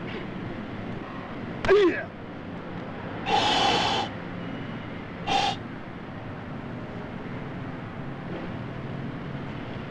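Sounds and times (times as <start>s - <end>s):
steady hiss: 3.3s - 4.1s, 5.3s - 5.6s.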